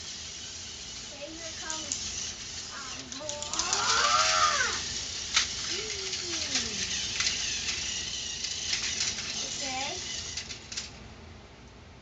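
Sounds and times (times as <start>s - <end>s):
plastic toy train clicks: 1.5s - 10.9s.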